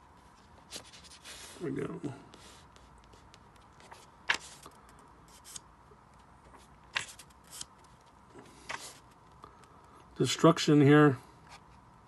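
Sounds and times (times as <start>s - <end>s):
paper pages turning: 0.1s - 1.7s, 2.3s - 9.8s.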